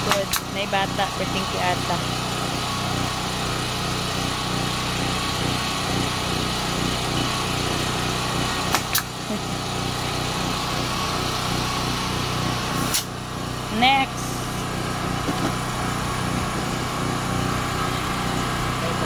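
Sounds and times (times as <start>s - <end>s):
generator engine running: 0.0s - 19.0s
staple gun firing cracks: 0.1s - 0.5s, 8.7s - 9.1s, 12.9s - 13.1s.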